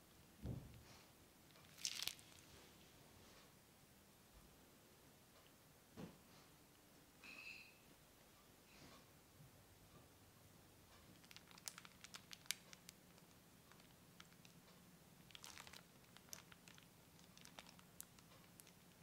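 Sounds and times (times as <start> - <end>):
piping bag crinkling: 1.5 - 2.7, 11.1 - 19.0.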